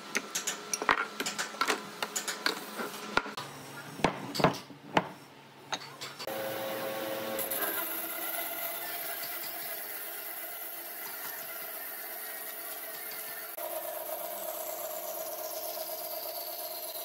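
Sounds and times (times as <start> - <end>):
bandsaw running hum: 6.3 - 17.0.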